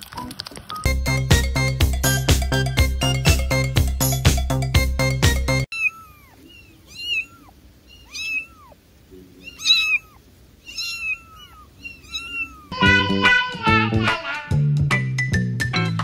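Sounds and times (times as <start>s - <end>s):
kitten meowing: 5.7s - 8.8s, 9.4s - 12.8s.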